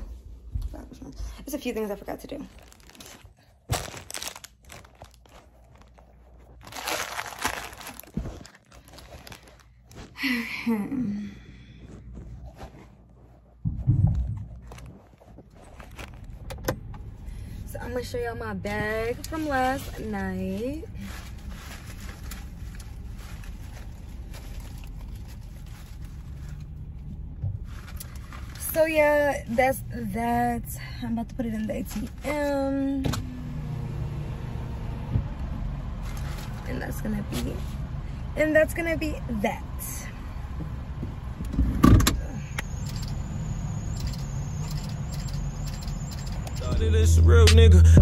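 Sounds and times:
rustling and crinkling: 0:00.0 - 0:17.2, 0:17.9 - 0:29.7, 0:31.5 - 0:32.6, 0:36.0 - 0:37.8
low rumble in car cabin: 0:10.6 - 0:48.0.

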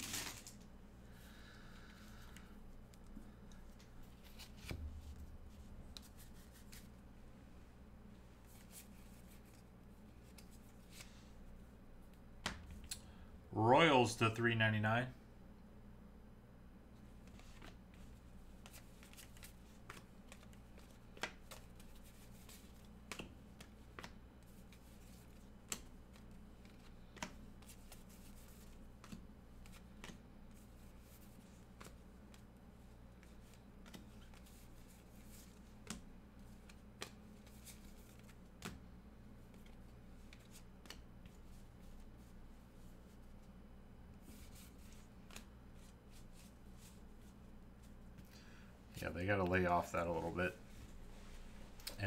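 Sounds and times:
low steady hum: 0:00.0 - 0:52.0
cards clicking and snapping: 0:18.6 - 0:24.8, 0:25.6 - 0:28.2, 0:29.0 - 0:30.2, 0:39.5 - 0:41.3.

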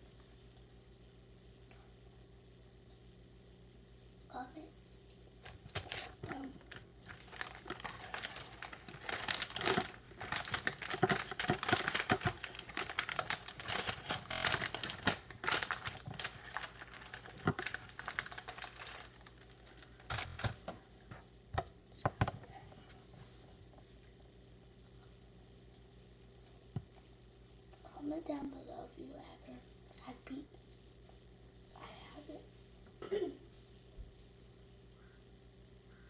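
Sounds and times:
plastic packaging crinkling: 0:05.4 - 0:20.6.

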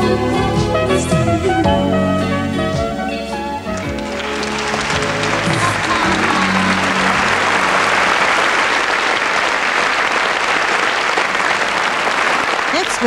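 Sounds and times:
audience applauding: 0:03.7 - 0:13.0.

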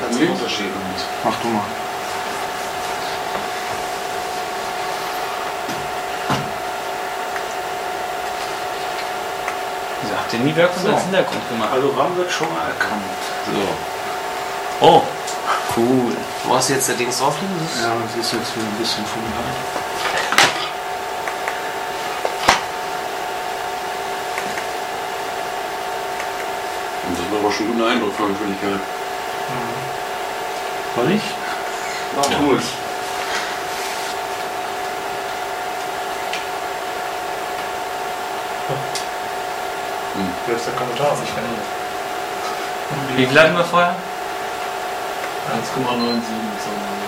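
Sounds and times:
pitched hum: 0:00.0 - 0:47.0.

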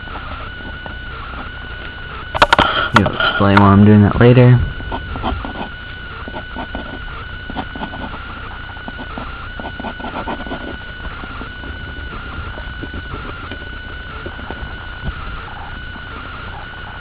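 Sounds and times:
high-pitched whine: 0:00.0 - 0:17.0
low hum: 0:00.0 - 0:17.0
pen scratching on paper: 0:04.8 - 0:17.0.

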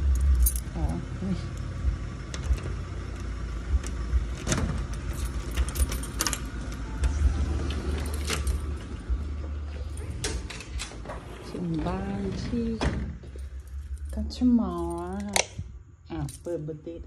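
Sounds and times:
keys jangling against lock: 0:00.0 - 0:01.0, 0:03.8 - 0:06.8, 0:07.8 - 0:08.9, 0:13.4 - 0:15.4
steady low rumble: 0:00.0 - 0:17.0.

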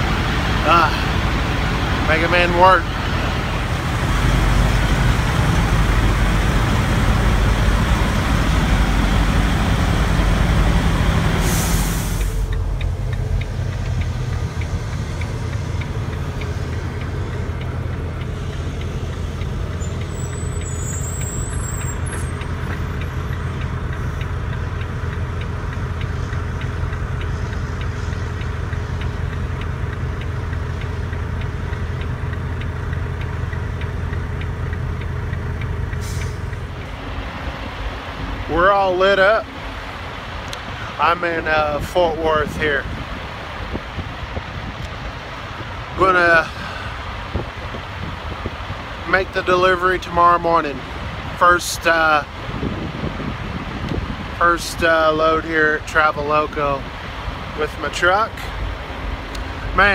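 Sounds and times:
loud rushing noise: 0:00.0 - 0:19.8
diesel truck engine idling: 0:00.0 - 0:59.9.

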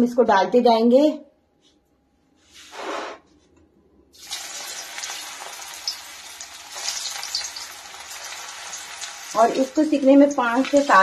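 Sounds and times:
hot oil sizzling and crackling: 0:04.2 - 0:11.0.

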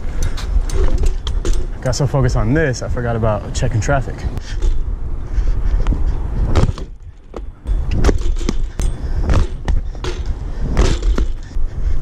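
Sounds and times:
bike knocks and clanks: 0:00.0 - 0:02.4, 0:05.9 - 0:12.0
bike rolling on concrete: 0:00.0 - 0:12.0
wind rumble on microphone: 0:00.0 - 0:12.0.

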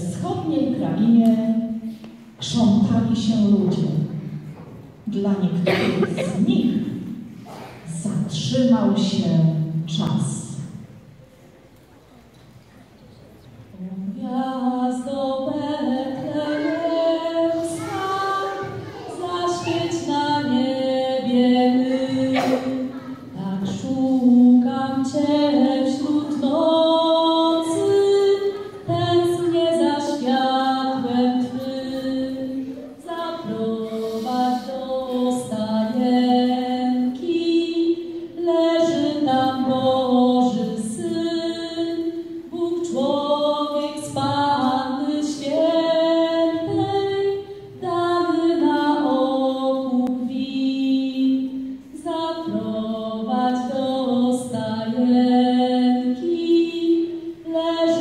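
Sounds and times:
girl singing into microphone: 0:13.8 - 0:58.0.

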